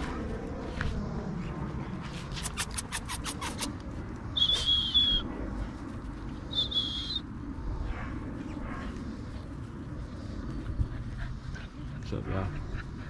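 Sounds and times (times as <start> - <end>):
short high whistles: 4.4 - 5.2, 6.5 - 7.2.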